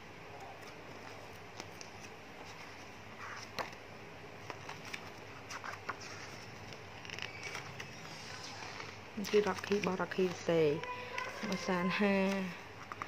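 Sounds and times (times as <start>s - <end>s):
faint steady hum: 0.0s - 13.0s
pages turning: 0.6s - 3.8s, 4.4s - 13.0s.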